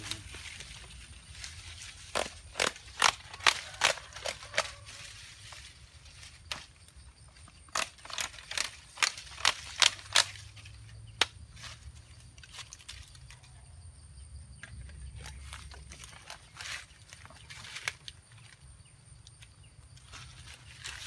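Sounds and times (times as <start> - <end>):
machete chopping plant stems: 2.0 - 5.0, 7.6 - 13.0.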